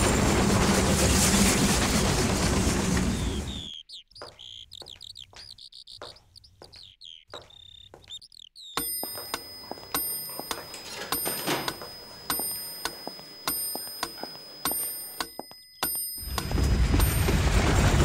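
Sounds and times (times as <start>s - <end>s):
small birds chirping: 2.9s - 16.1s
high-pitched bell ringing: 8.8s - 18.0s.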